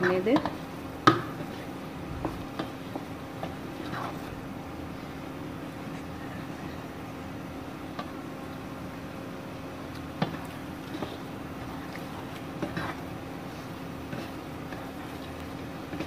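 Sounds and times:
steady low hum: 0.0s - 16.0s
spatula scraping frying pan: 1.3s - 4.4s, 10.2s - 16.0s.

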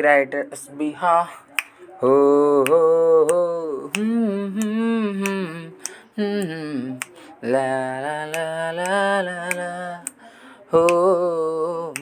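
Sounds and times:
person singing wordless notes: 0.0s - 12.0s
sharp clicks on the beat: 8.1s - 10.2s.

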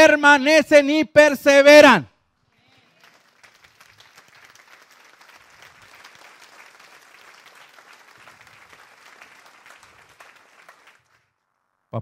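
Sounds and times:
crowd applauding: 2.6s - 11.4s.

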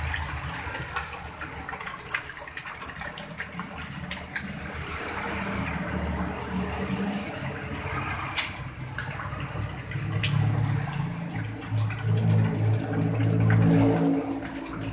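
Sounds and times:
water splashing into pond: 0.0s - 14.9s.

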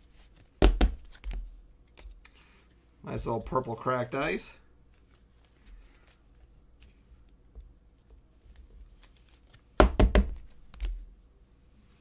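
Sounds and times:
cards knocking on table: 0.6s - 1.1s, 9.8s - 10.5s
card sleeve rustling and clicks: 8.0s - 9.7s.

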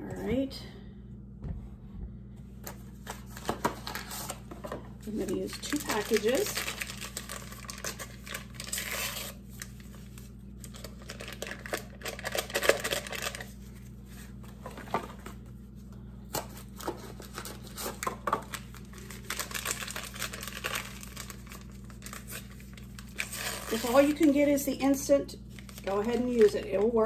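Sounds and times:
packets tearing and crinkling: 3.0s - 4.5s, 5.1s - 13.6s, 16.3s - 24.4s.

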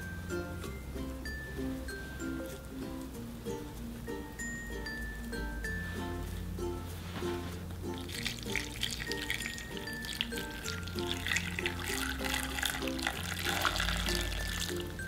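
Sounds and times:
light music with plucked notes: 0.0s - 15.0s
water pouring onto food: 7.9s - 15.0s.

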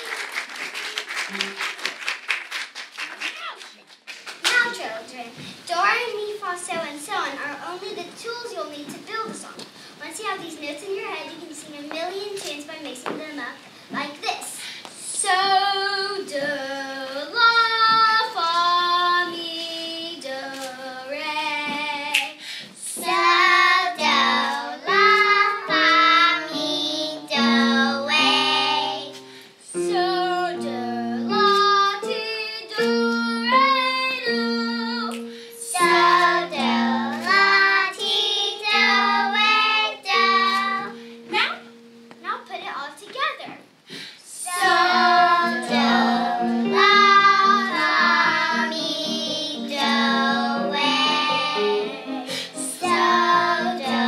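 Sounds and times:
girl singing: 10.8s - 42.0s, 44.3s - 54.0s
instrumental accompaniment: 23.0s - 42.3s, 44.5s - 54.0s.

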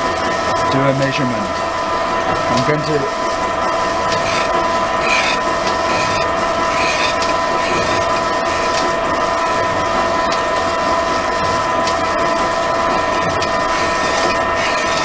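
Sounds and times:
pillar drill whine: 1.6s - 15.0s.

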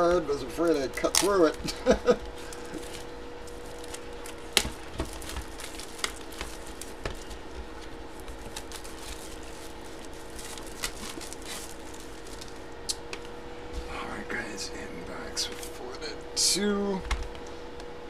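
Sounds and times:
faint steady hum: 0.0s - 18.0s
paper and plastic rustling: 0.9s - 12.7s.

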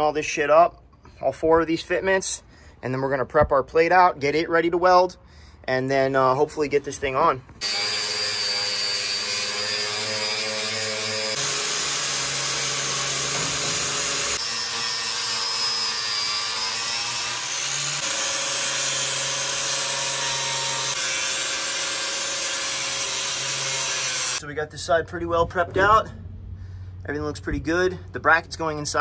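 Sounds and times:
angle grinder grinding steel: 7.6s - 24.4s.

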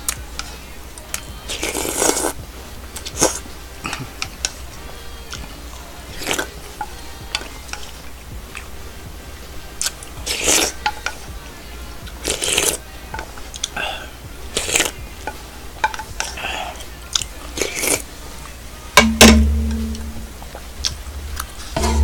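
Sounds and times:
person slurping soup: 1.5s - 2.4s, 10.3s - 10.8s, 12.2s - 12.8s, 13.7s - 15.0s, 17.6s - 18.1s.

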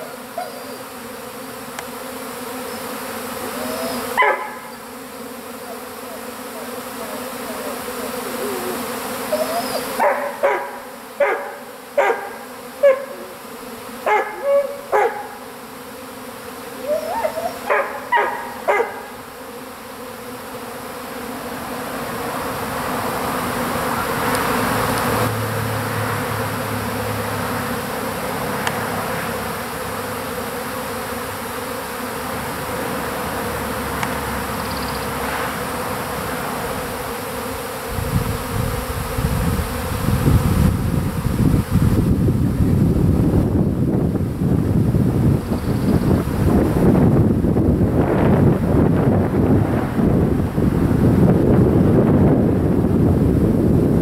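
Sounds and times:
bee swarm buzzing: 0.0s - 54.0s
dog barking: 3.6s - 4.8s, 9.3s - 13.3s, 14.0s - 15.4s, 16.9s - 19.1s.

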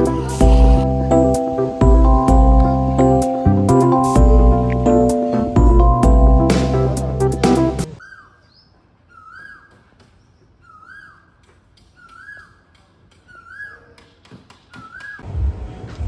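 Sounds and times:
bird calling: 8.0s - 15.2s.

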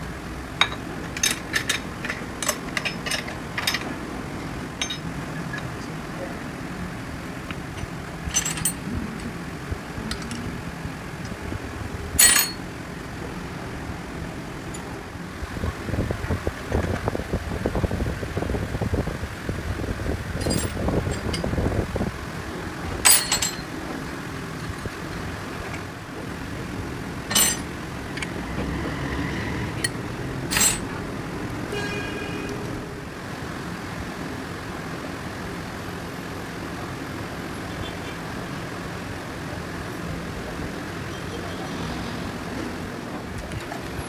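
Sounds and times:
workshop hum: 0.0s - 16.5s, 20.0s - 34.7s
metal tools clanking: 0.6s - 4.0s, 4.8s - 5.7s, 7.5s - 8.9s, 12.2s - 12.6s, 20.4s - 21.6s, 23.0s - 23.8s, 27.3s - 28.3s, 29.8s - 30.9s.

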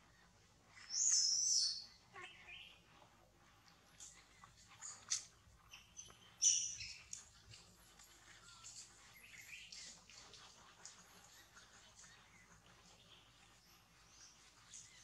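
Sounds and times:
high-pitched animal squeaks: 4.8s - 7.2s.

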